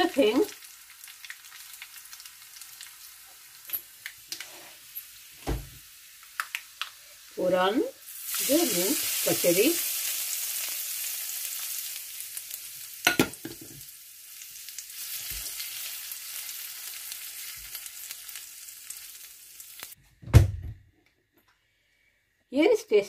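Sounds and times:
hot oil sizzling: 0.0s - 20.0s
low thump: 20.2s - 20.8s.

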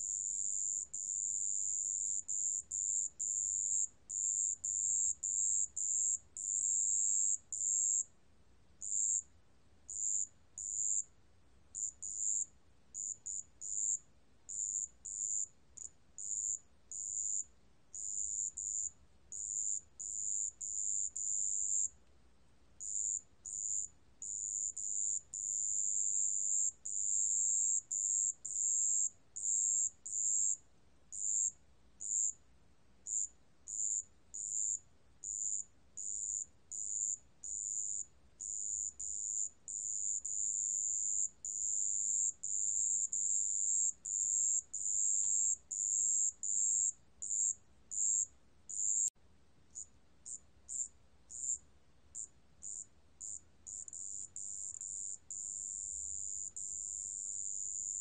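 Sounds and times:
cricket trilling: 9.9s - 11.0s, 11.8s - 17.4s, 43.0s - 49.1s, 49.8s - 51.6s, 52.2s - 58.0s.

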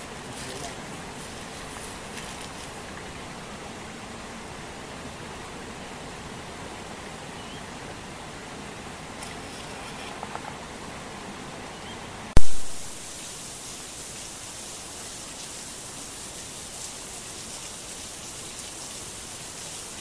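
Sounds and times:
background hiss: 0.0s - 20.0s
loud sharp click: 12.4s - 13.0s.

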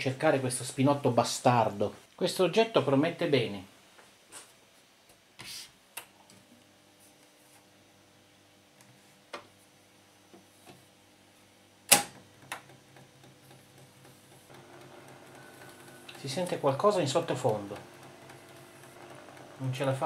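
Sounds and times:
faint steady recorder hum: 5.9s - 20.0s.

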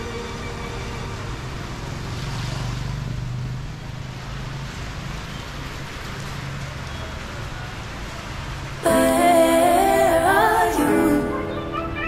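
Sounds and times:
rain on a wet street: 0.0s - 8.8s.

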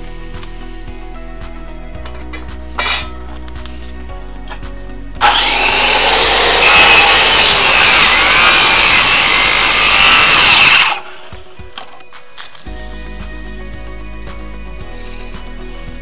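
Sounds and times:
power saw cutting wood: 5.2s - 11.4s.

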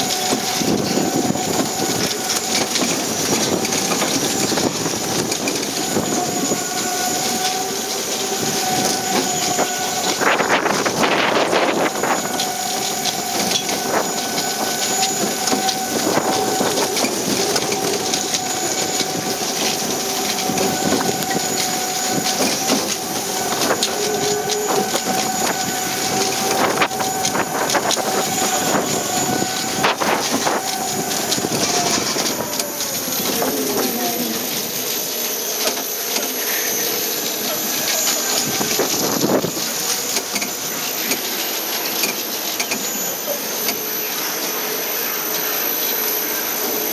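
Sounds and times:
rattles and clicks: 0.0s - 44.6s
roller coaster train whine: 0.0s - 46.9s
wind on microphone: 8.3s - 34.6s, 38.4s - 39.8s.

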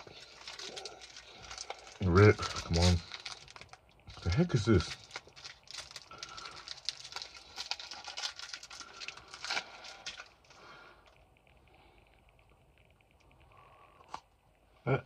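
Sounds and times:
wrapper crinkling and tearing: 0.0s - 11.2s.

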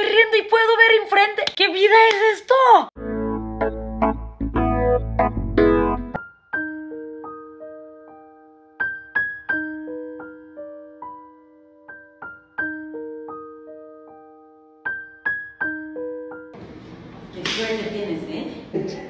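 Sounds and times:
slow soft piano music: 3.0s - 16.6s.

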